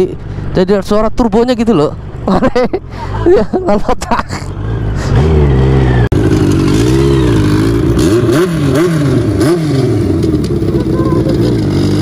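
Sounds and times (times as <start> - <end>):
motorcycle engine revving: 4.4 - 12.0.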